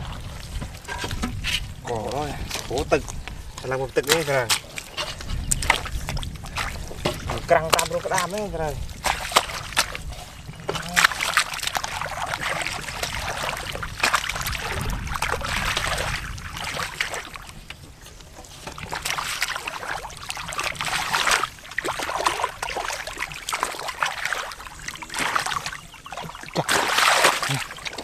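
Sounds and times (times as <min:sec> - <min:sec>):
water trickling: 0:00.0 - 0:28.0
hands splashing in muddy water: 0:05.5 - 0:17.6, 0:18.7 - 0:28.0.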